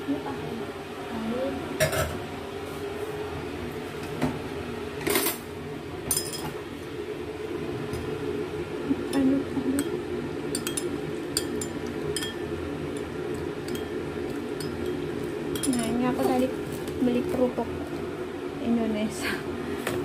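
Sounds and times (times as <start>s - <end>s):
spoon clinking in ceramic bowl: 9.8s - 12.5s, 13.6s - 14.0s, 14.6s - 16.0s.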